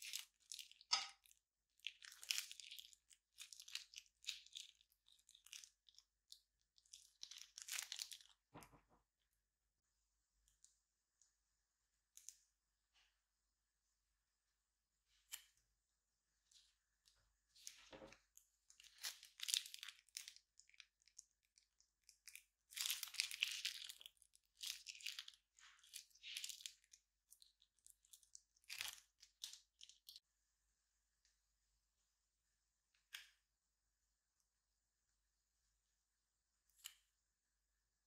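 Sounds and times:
slime crinkling and crackling: 0:00.0 - 0:08.9, 0:17.5 - 0:30.2.

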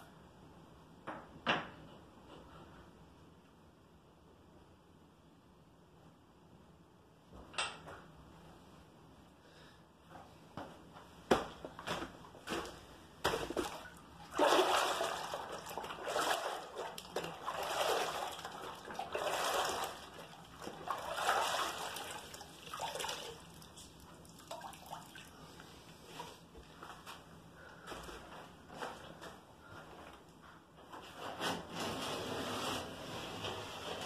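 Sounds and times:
water splashing and sloshing: 0:11.9 - 0:26.5.

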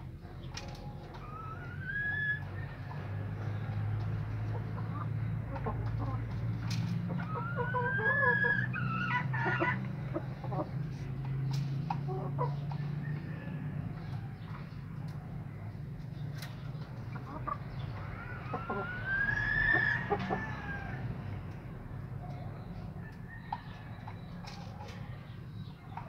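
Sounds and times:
chicken clucking: 0:00.0 - 0:26.0
rooster crowing: 0:12.9 - 0:14.3, 0:18.4 - 0:21.1.

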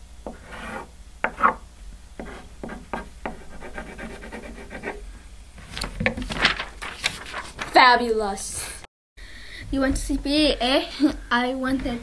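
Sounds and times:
pen scratching on paper: 0:02.2 - 0:05.0.

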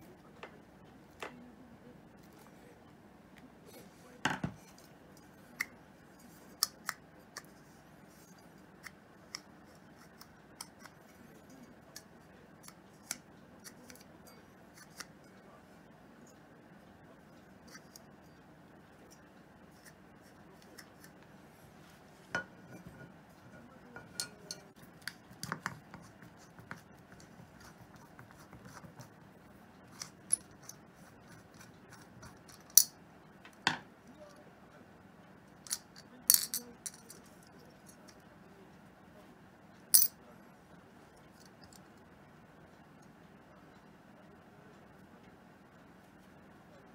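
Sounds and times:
small metal parts clinking: 0:35.7 - 0:37.3.

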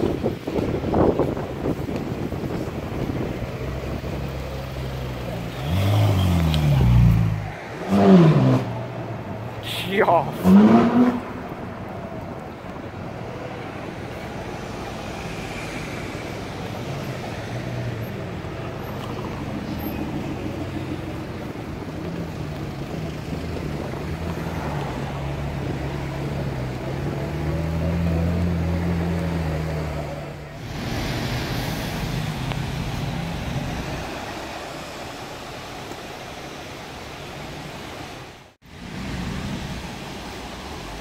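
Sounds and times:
car engines droning in traffic: 0:00.0 - 0:41.0.

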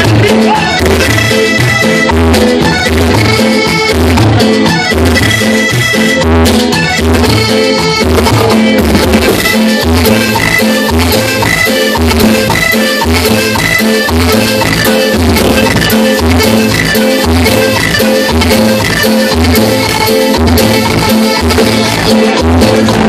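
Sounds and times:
bass line: 0:00.0 - 0:23.0
button accordion: 0:00.0 - 0:23.0
congas: 0:00.0 - 0:23.0
live band playing: 0:00.0 - 0:23.0.

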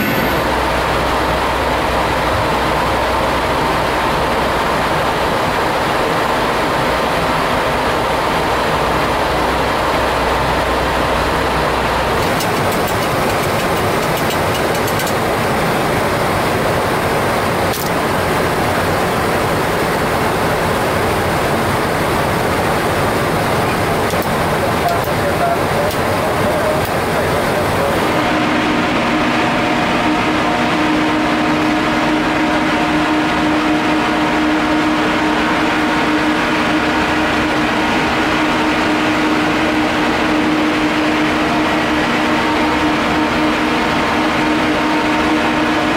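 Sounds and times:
low hum: 0:00.0 - 0:45.9
rushing cockpit noise: 0:00.0 - 0:45.9.

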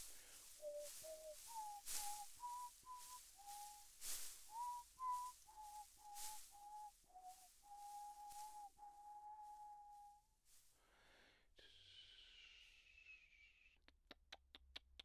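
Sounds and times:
breaths: 0:00.0 - 0:00.7, 0:10.5 - 0:13.4
person whistling a tune: 0:00.5 - 0:10.3.

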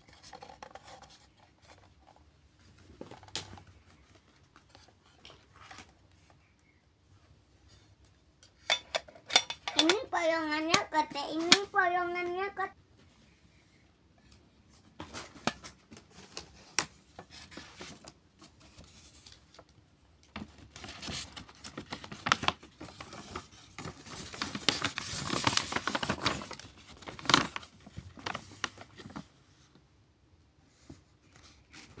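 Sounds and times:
paper bag rustling: 0:20.3 - 0:29.4.

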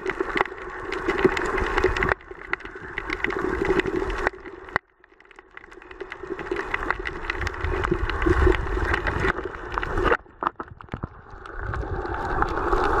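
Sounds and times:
muffled water rumble: 0:00.0 - 0:13.0
underwater hum: 0:00.0 - 0:13.0.

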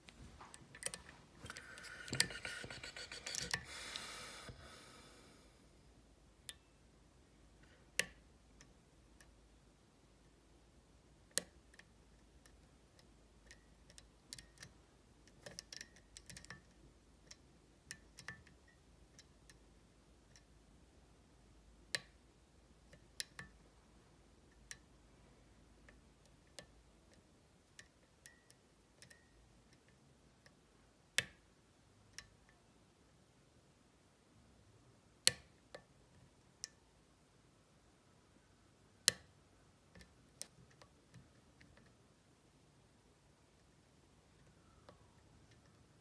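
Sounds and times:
metallic clicks of lock picking: 0:13.4 - 0:18.6.

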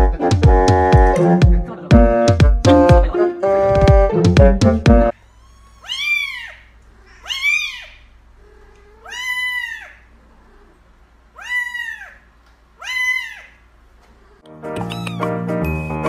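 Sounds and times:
kitten meowing: 0:05.2 - 0:10.6, 0:11.4 - 0:12.2, 0:12.8 - 0:13.6, 0:14.8 - 0:16.0.

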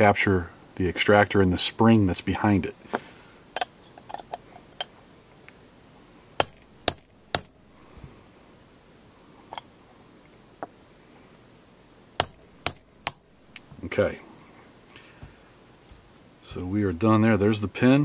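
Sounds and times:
steel punch tapping metal: 0:06.4 - 0:07.6, 0:12.2 - 0:13.3.

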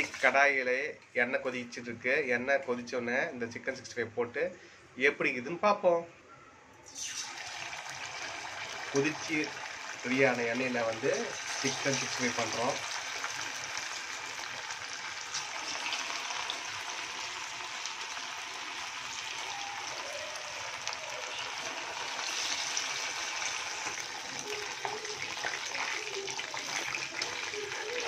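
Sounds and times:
chicken deep-frying in hot oil: 0:00.0 - 0:00.4, 0:06.9 - 0:28.0.

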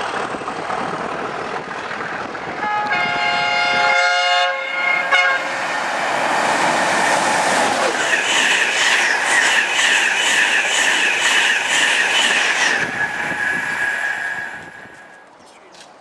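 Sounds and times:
train rushing past: 0:00.0 - 0:15.2
train horn: 0:02.6 - 0:05.6
steady high whine: 0:04.9 - 0:15.2
train wheel clicks: 0:07.9 - 0:13.8.

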